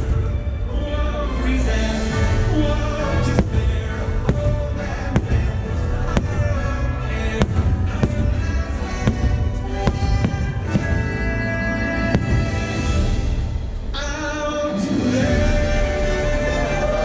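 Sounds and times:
show music: 0.0 - 17.0
fireworks bursting: 3.2 - 14.1.

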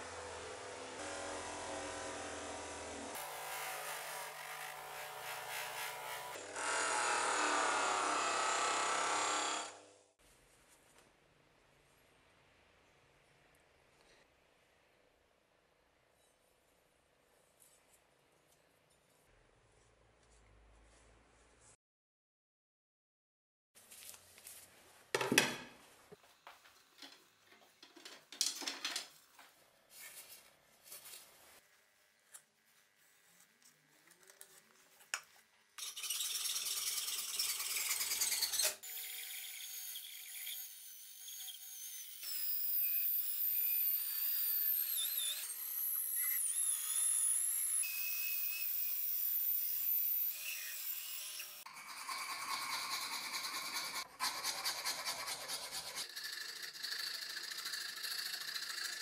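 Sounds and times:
drill boring into wood: 1.0 - 9.8, 35.8 - 54.0
file rasping on wood: 51.6 - 59.0.

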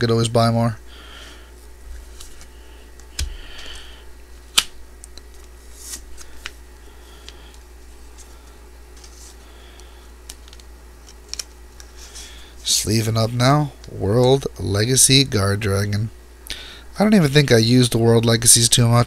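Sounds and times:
cards sliding into plastic sleeves: 2.0 - 6.6, 7.2 - 12.4.

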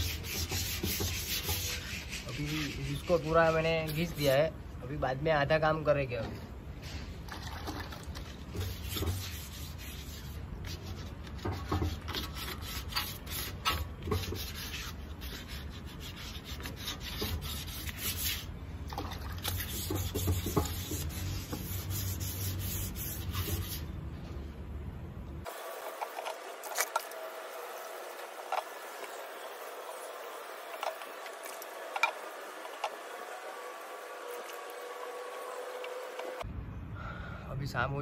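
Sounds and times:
sandpaper scratching on metal: 0.0 - 4.4, 8.5 - 18.5, 19.4 - 23.9.

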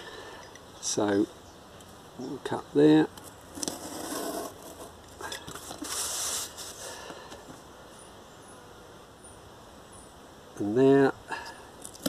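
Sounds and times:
knife cutting cardboard: 3.6 - 4.9.

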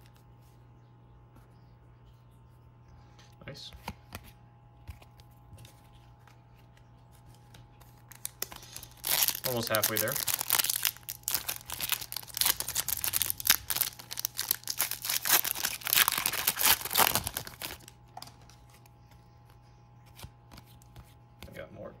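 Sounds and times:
foil wrapper crinkling and tearing: 7.1 - 18.9.

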